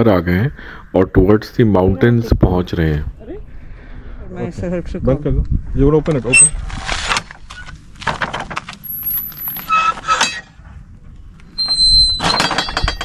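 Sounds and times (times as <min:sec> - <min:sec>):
gate squeak: 0:06.3 - 0:06.6, 0:08.8 - 0:10.6, 0:11.5 - 0:13.0
metal gate latch clicking and scraping: 0:08.8 - 0:10.6, 0:11.6 - 0:13.0
loud metallic clatter: 0:11.9 - 0:13.0.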